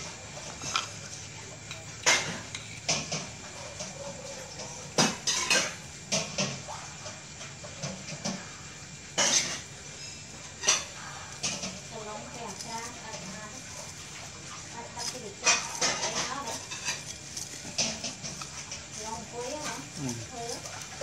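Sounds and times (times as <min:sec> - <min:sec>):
quiet rustling: 0:10.6 - 0:21.0.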